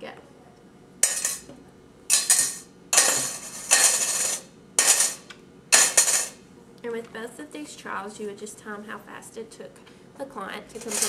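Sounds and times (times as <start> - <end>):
small objects clattering into metal can: 1.0 - 1.4, 2.1 - 5.2, 5.8 - 6.4, 10.8 - 11.0.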